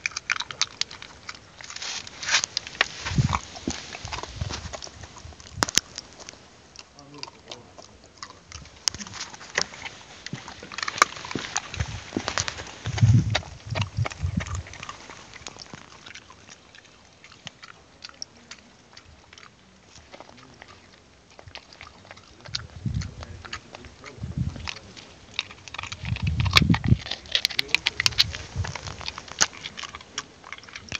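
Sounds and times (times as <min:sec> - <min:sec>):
dog chewing walnut shell: 0:00.0 - 0:30.9
dull low thumps: 0:03.0 - 0:05.9, 0:08.5 - 0:15.0, 0:24.1 - 0:24.7, 0:25.9 - 0:27.1.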